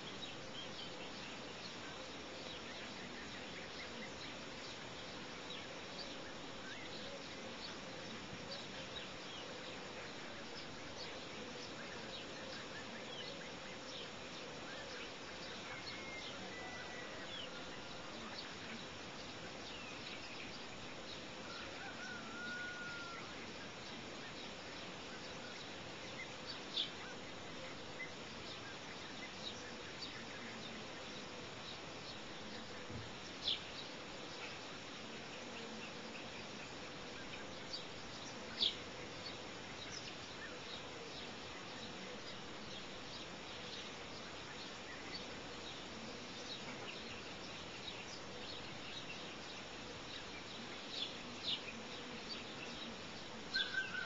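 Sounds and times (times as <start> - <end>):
faint steady hum: 0.0 - 54.0
steady hiss: 0.0 - 54.0
bird-like chirps: 46.4 - 54.0
whistled calls: 53.5 - 54.0.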